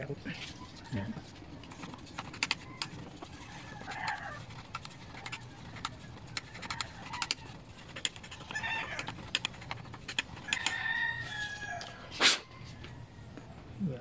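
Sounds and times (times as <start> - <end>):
sandpaper scraping: 1.6 - 11.6.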